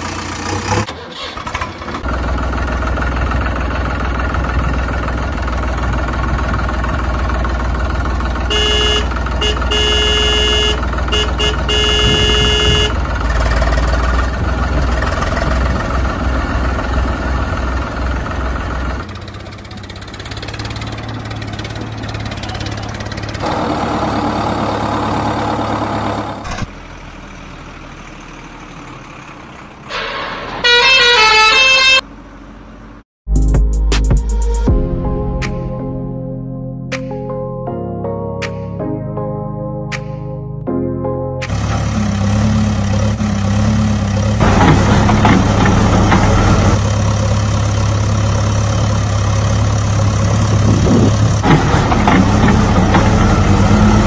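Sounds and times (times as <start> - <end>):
vehicle engine running: 0.0 - 0.9, 1.6 - 30.0, 41.4 - 54.0
horn honking: 8.4 - 13.1, 29.9 - 32.1
horn tooting a short tune: 8.5 - 13.0, 29.9 - 32.0.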